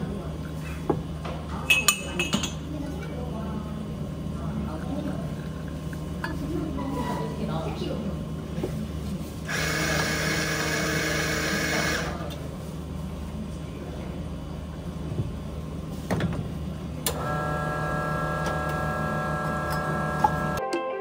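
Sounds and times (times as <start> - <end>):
espresso machine hum: 9.4 - 15.9, 16.6 - 20.6
espresso machine hiss: 9.5 - 12.1, 17.2 - 20.6
motor whine: 9.5 - 12.2, 17.1 - 20.6.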